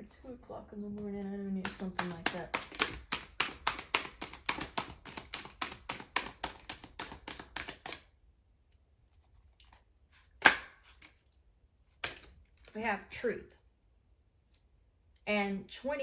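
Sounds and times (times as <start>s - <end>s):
cards being shuffled: 1.6s - 8.1s, 11.9s - 12.8s
card slapped on table: 10.4s - 10.8s.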